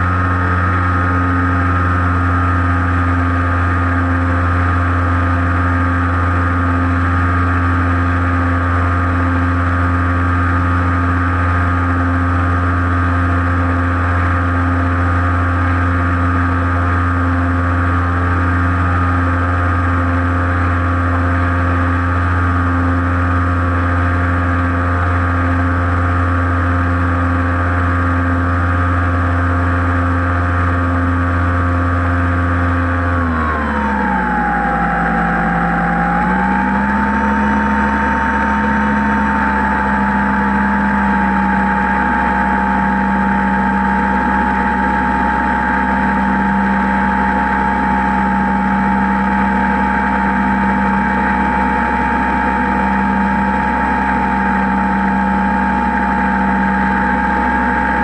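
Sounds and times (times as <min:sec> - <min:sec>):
model airplane motor droning: 0:00.0 - 0:58.0.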